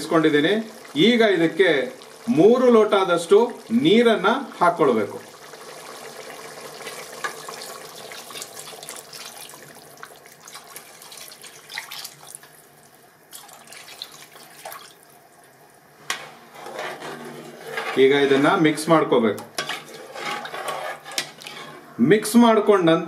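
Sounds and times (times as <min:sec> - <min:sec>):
water pouring into a pot: 0:00.0 - 0:15.4.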